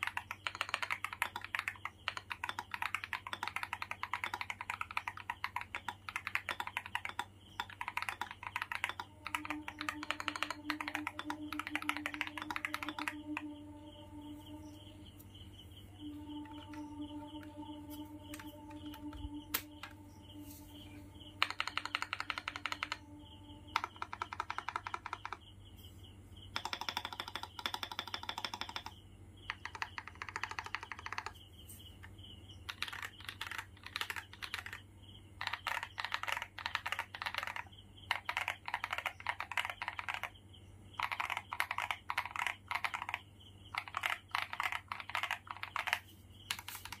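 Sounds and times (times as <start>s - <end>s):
crunchy mechanical keyboard typing: 0.0s - 14.8s, 21.2s - 25.5s, 26.5s - 31.4s, 32.7s - 47.0s.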